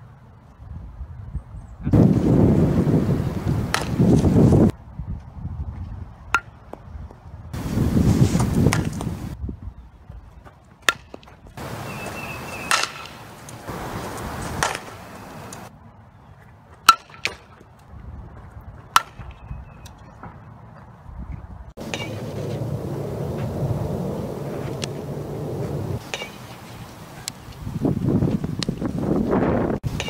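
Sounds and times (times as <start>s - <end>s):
wind noise on microphone: 0.0s - 10.6s, 11.4s - 15.8s, 17.8s - 30.0s
bat hitting ball: 3.6s - 4.3s, 6.3s - 6.6s, 8.4s - 9.2s, 10.8s - 15.7s, 16.9s - 17.7s, 18.9s - 19.4s, 21.8s - 26.6s.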